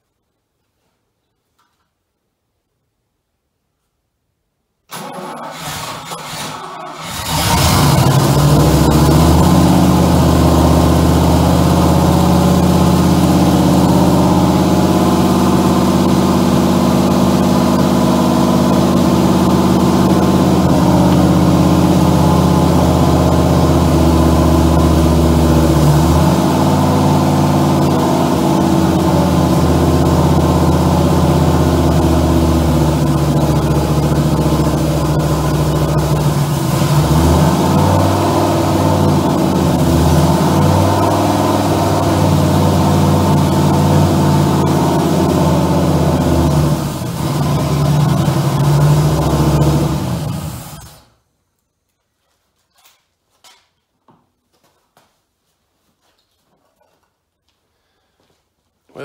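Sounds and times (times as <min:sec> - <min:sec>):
car engine at fast idle: 0:05.6 - 0:51.0.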